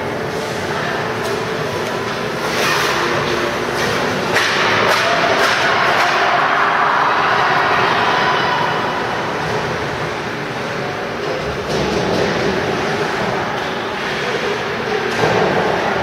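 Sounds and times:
arena crowd din: 0:00.0 - 0:16.0
hockey stick or puck clacks: 0:01.9 - 0:06.5
skates scraping ice: 0:02.0 - 0:08.2.

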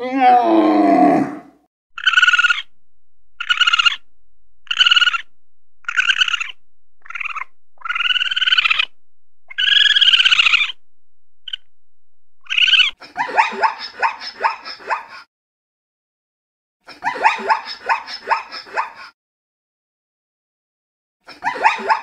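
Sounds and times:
high-pitched animal calls: 0:00.0 - 0:02.8, 0:03.4 - 0:10.8, 0:11.4 - 0:11.7, 0:12.4 - 0:13.0
animal yipping: 0:02.0 - 0:02.7, 0:03.4 - 0:04.0, 0:04.6 - 0:08.9, 0:09.5 - 0:10.8, 0:12.4 - 0:13.0.

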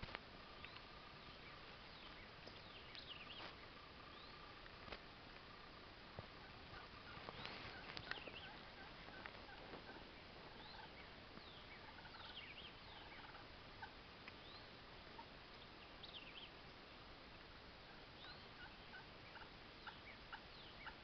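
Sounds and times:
faint turkeys gobbling: 0:00.0 - 0:21.0
high bird chirps: 0:07.0 - 0:08.7.

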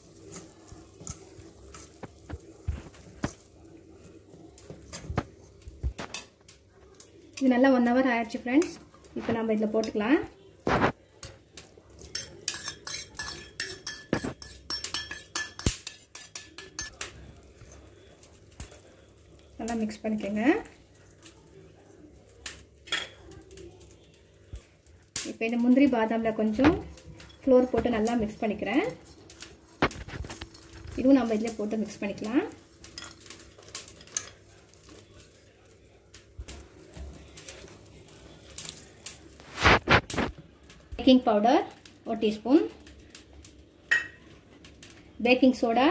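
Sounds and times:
metal spoon clinking on steel bowl: 0:12.0 - 0:17.1.

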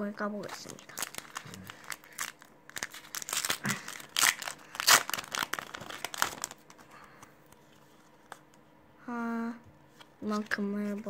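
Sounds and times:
foil wrapper crinkling: 0:00.4 - 0:07.1.

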